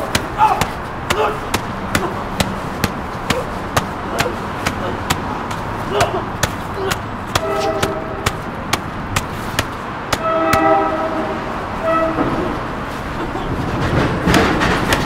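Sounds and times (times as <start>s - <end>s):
punches landing on a body: 0.0s - 10.7s
train horn blasts: 7.4s - 8.3s, 10.2s - 12.6s.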